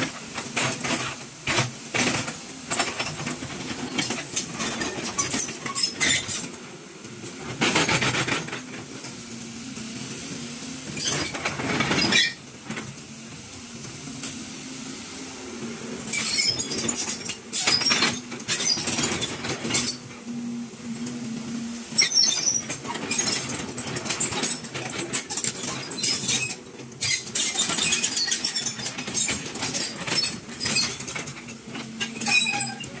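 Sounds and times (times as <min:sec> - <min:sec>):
high-pitched squeaks and clicks: 0:16.1 - 0:20.1, 0:21.9 - 0:33.0.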